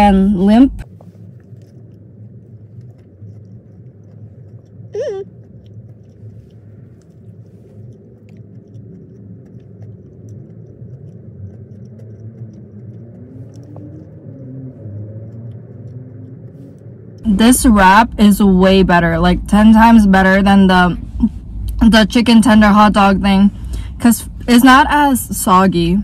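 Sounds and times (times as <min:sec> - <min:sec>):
car interior rumble: 0:00.0 - 0:26.0
person chewing food: 0:00.8 - 0:17.3
person humming: 0:04.9 - 0:05.3.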